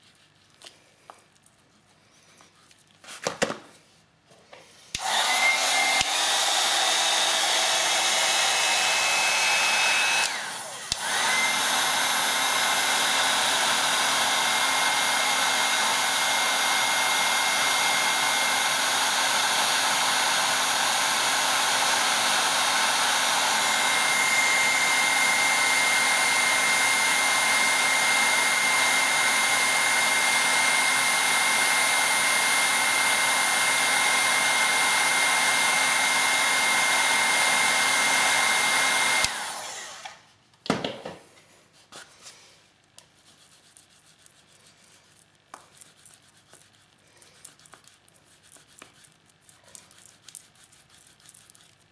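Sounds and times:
heat gun blowing: 4.7s - 40.3s.

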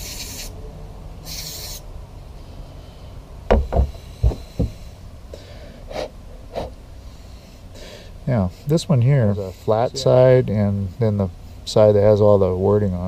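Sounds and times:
aerosol spray hissing: 0.0s - 0.6s, 1.3s - 1.8s
parts knocking on a table: 3.5s - 4.8s.

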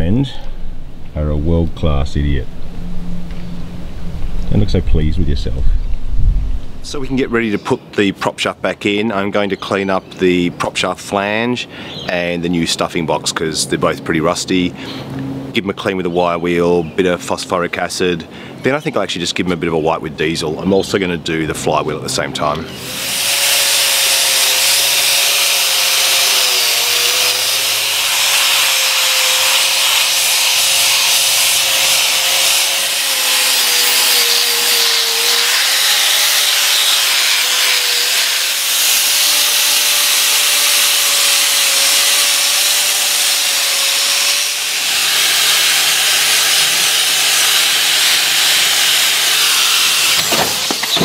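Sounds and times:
angle grinder motor whine: 22.6s - 51.0s
wire brush hissing on metal: 22.8s - 51.0s.

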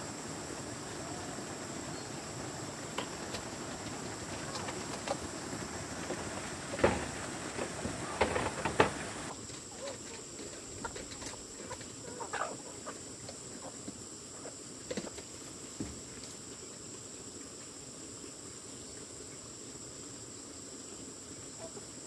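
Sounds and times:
chickens clucking: 0.8s - 15.2s.

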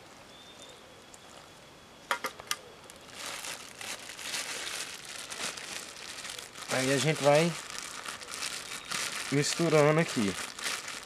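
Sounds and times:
plastic bag crinkling: 2.9s - 11.0s.

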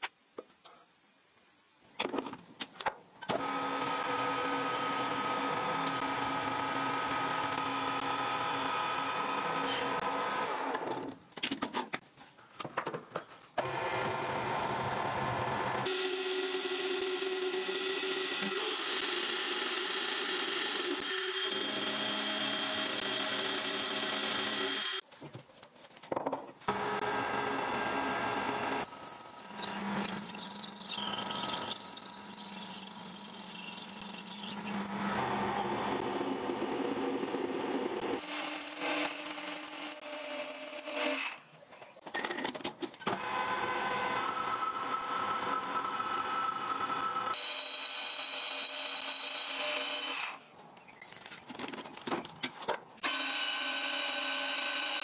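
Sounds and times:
drill squealing in steel: 14.0s - 15.4s, 28.8s - 35.2s.

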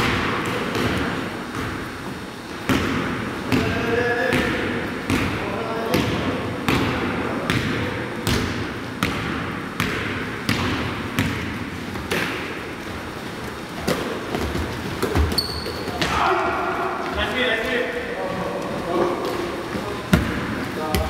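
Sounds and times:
basketball bouncing on wooden floor: 2.7s - 12.3s, 13.8s - 16.2s, 20.1s - 21.0s.

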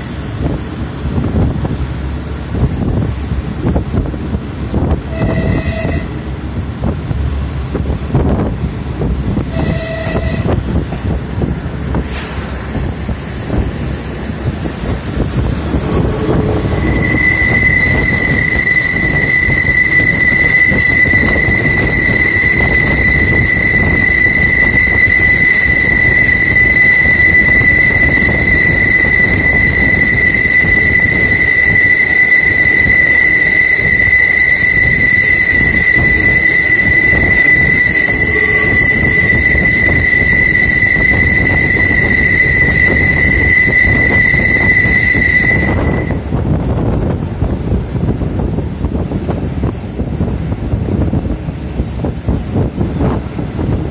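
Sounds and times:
train rumble on board: 0.0s - 53.9s
train wheel squeal: 5.0s - 6.2s, 9.4s - 11.1s, 11.9s - 46.9s.

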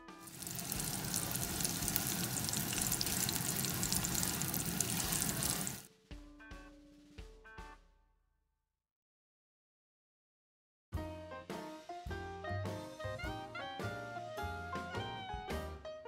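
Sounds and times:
fish sizzling in hot oil: 0.0s - 5.9s.

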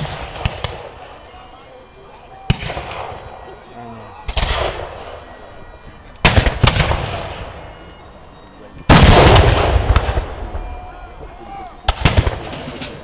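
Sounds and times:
musket shots: 0.0s - 1.2s, 8.9s - 10.6s, 11.9s - 13.0s.

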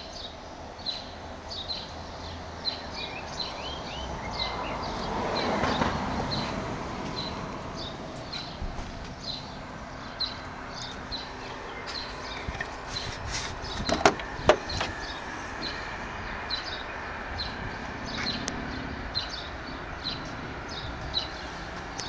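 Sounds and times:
small birds chirping: 0.0s - 22.0s
car bonnet knocks: 13.8s - 15.0s.

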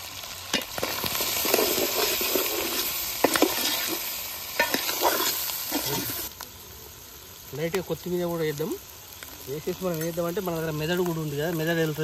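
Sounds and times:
oil sizzling: 0.0s - 12.0s
ladle scraping metal pot: 0.8s - 4.0s.

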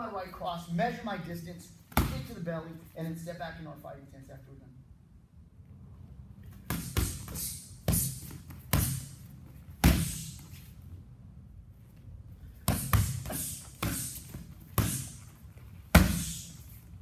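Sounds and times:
punches and kicks hitting pads: 1.9s - 2.3s, 6.6s - 10.4s, 12.6s - 15.2s, 15.8s - 16.5s.

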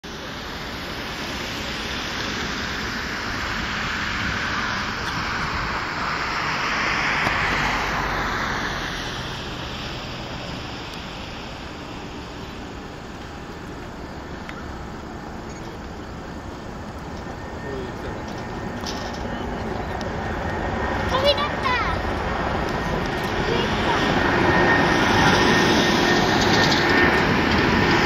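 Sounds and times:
jet engines roaring at takeoff: 0.0s - 28.0s.

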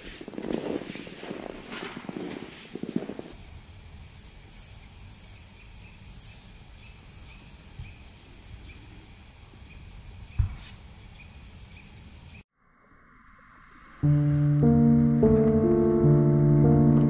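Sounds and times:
low rumble: 12.6s - 17.0s.

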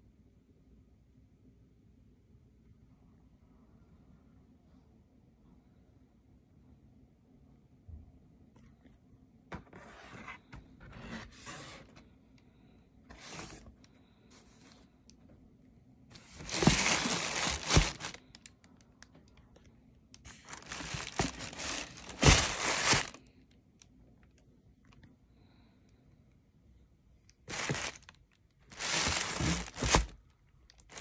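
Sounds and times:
cardboard box rustling: 9.6s - 12.0s, 13.1s - 13.8s, 16.2s - 18.2s, 20.3s - 23.2s, 27.5s - 28.1s, 28.7s - 30.2s
tissue paper crinkling: 16.2s - 18.4s, 20.3s - 23.2s, 27.5s - 28.1s, 28.7s - 30.2s.

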